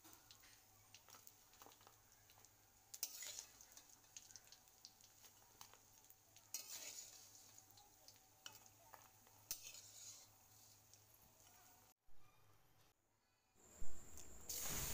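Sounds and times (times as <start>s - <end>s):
oil sizzling: 0.0s - 12.0s, 14.5s - 14.9s
spatula scraping a metal pan: 2.9s - 3.9s, 6.5s - 7.8s, 8.4s - 10.9s.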